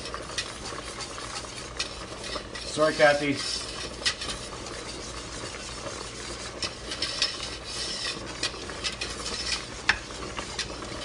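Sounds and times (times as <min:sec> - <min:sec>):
whisk scraping against pot: 0:00.0 - 0:11.0.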